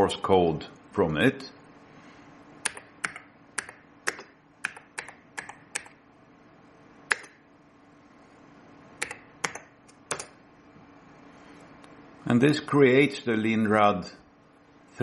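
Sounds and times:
keyboard typing clicks: 2.7 - 6.0, 9.0 - 10.4.

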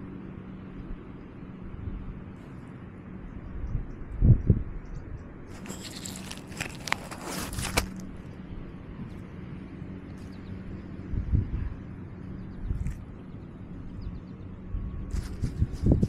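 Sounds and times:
steady low hum: 0.0 - 16.0
rustling in grass: 5.5 - 8.1, 15.1 - 16.0.

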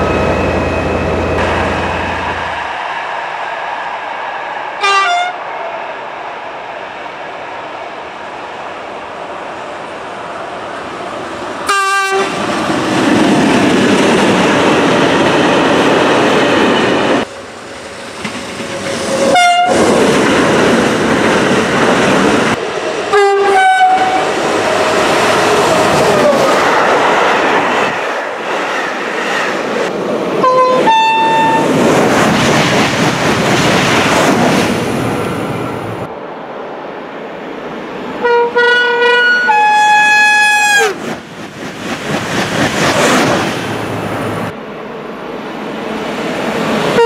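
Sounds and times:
train rumble and wheel clatter: 0.0 - 47.0
locomotive horn blasts: 4.8 - 5.4, 11.7 - 12.3, 19.3 - 19.8, 23.1 - 24.2, 30.4 - 31.6, 38.2 - 41.0.

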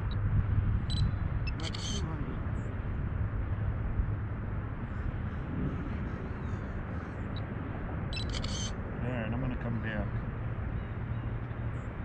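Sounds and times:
distant highway traffic rumble: 0.0 - 12.0
high chirping: 0.9 - 2.0, 8.1 - 8.7.

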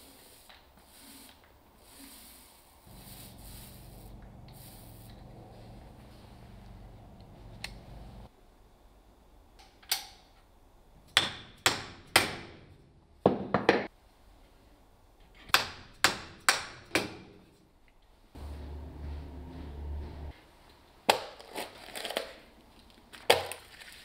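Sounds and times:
low steady hum: 2.8 - 9.7, 18.3 - 20.8.

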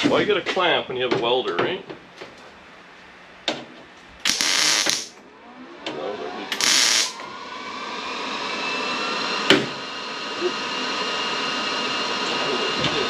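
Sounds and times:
faint mechanical whine: 0.0 - 13.0
welder crackling hiss: 4.2 - 5.2, 6.5 - 7.2.

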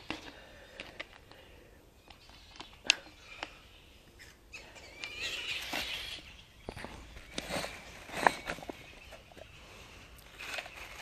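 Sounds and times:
plastic rustling: 10.2 - 11.0.

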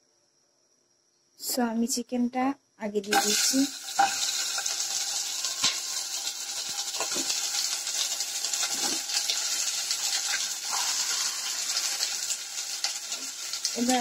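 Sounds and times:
chicken sizzling in oil: 3.1 - 14.0.

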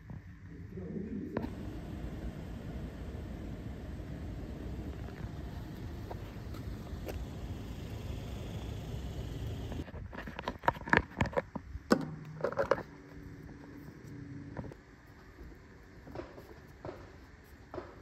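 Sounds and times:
low background rumble: 0.4 - 9.9.

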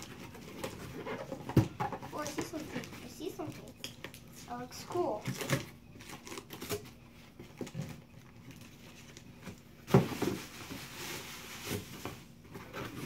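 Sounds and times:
packing paper rustling: 0.0 - 13.0.

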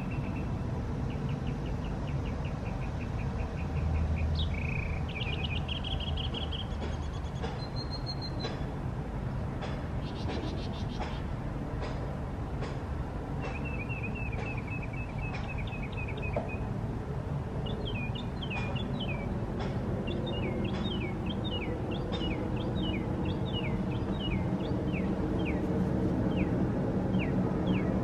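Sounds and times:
bird trilling and singing: 1.1 - 8.6, 13.4 - 16.7, 17.6 - 19.4, 20.0 - 25.7, 26.3 - 28.0.

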